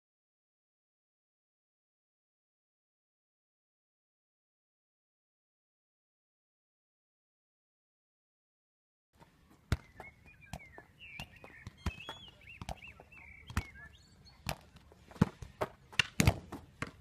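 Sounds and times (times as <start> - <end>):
bird chirping: 9.4 - 15.6
football thudding on body: 15.2 - 17.0.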